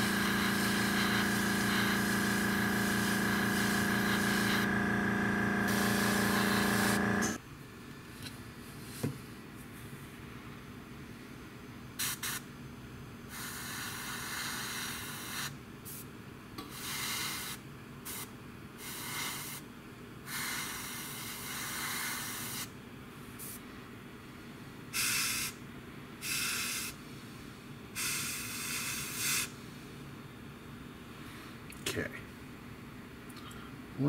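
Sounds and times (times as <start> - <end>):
airbrush spraying hiss: 0.0 - 7.4, 28.0 - 29.5.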